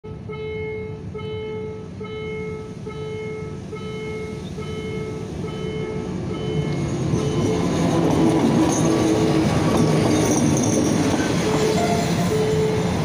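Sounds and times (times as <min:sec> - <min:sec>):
diesel locomotive rumble: 0:00.1 - 0:13.0
level-crossing warning bell: 0:00.1 - 0:13.0.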